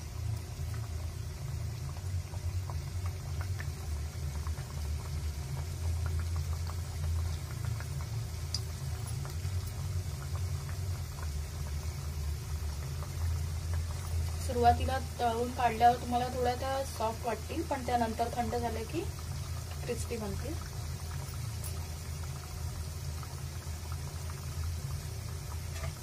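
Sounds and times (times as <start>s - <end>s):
dough deep-frying in oil: 0.0s - 26.0s.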